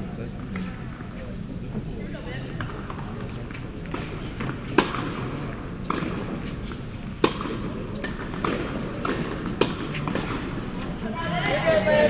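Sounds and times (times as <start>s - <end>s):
racket striking tennis ball: 3.5s - 10.9s.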